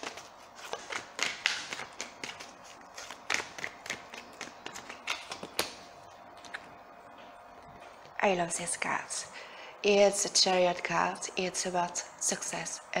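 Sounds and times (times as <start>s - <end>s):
cards being shuffled: 0.0s - 5.8s.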